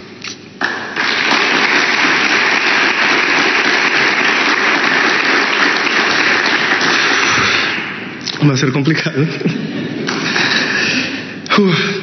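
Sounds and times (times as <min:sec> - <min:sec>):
audience applauding: 0:00.6 - 0:08.1.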